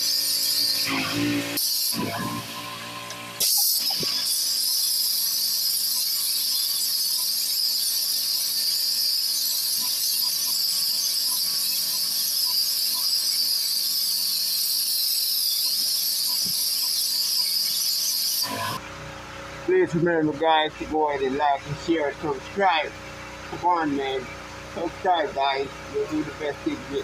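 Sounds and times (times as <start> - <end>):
pressure washer water jet hissing: 0.0 - 18.8.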